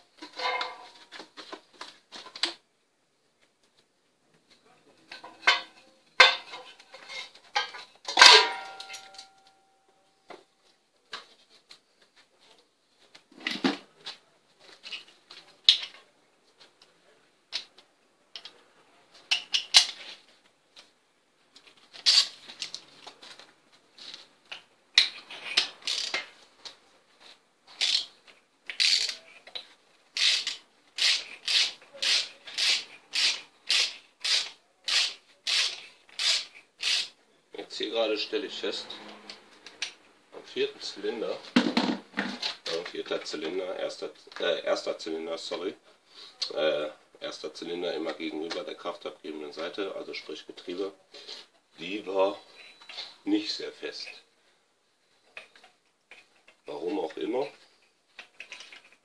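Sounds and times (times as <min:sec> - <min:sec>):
ratchet clicking: 0:25.8 - 0:26.2, 0:28.8 - 0:29.2, 0:30.2 - 0:37.1.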